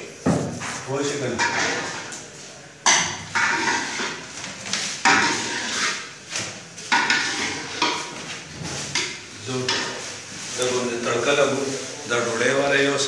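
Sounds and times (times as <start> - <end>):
metallic knocks of cooking pots: 1.4 - 1.9, 2.8 - 4.3, 5.0 - 5.6, 6.9 - 8.1.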